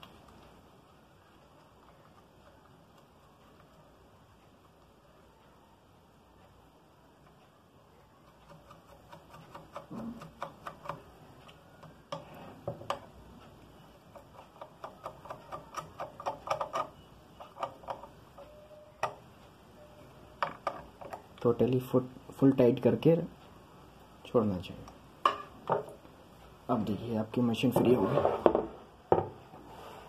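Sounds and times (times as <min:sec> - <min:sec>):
screwdriver clicking on metal: 0:08.3 - 0:11.1, 0:14.1 - 0:19.2.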